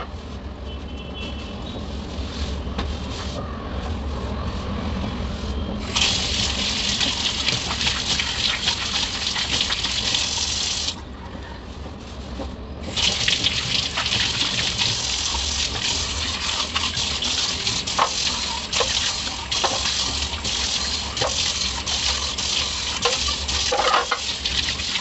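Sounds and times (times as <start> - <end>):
tap running into a metal sink: 12.9 - 25.0.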